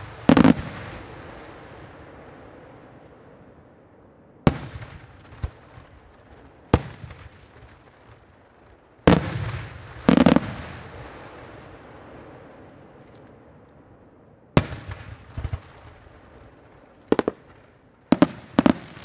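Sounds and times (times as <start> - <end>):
firework crackle: 0.0 - 3.2, 4.5 - 13.7, 14.6 - 19.0
firework shells bursting: 14.6 - 19.0.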